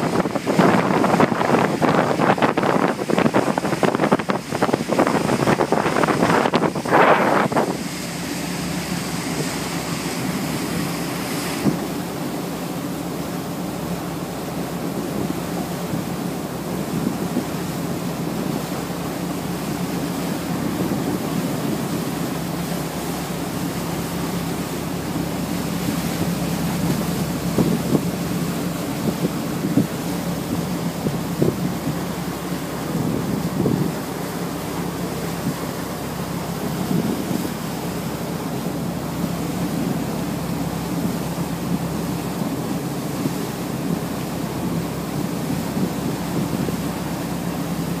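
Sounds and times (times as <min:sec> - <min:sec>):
wind buffeting microphone: 0:00.0 - 0:12.2, 0:24.6 - 0:47.8
boat engines droning: 0:00.0 - 0:48.0
water rushing past hull: 0:00.0 - 0:48.0.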